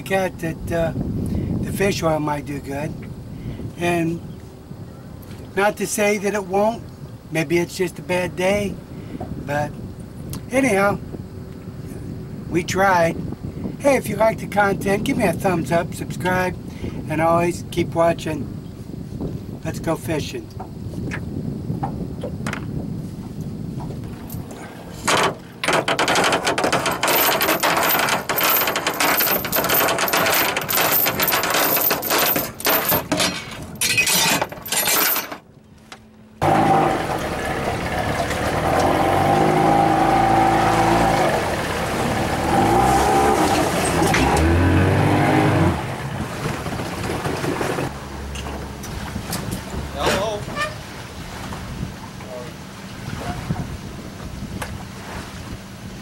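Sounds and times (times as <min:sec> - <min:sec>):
rushing wind: 0:00.0 - 0:56.0
boat engine: 0:23.3 - 0:56.0
boat hull slapping choppy water: 0:36.9 - 0:56.0.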